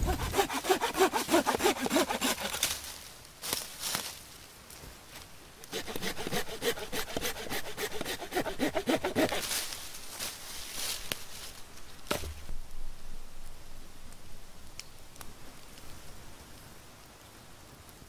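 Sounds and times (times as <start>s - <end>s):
wood being sawn by hand: 0.0s - 2.8s, 5.6s - 9.8s
wood knocking and crackling: 11.0s - 12.6s
dull thump: 12.1s - 12.5s.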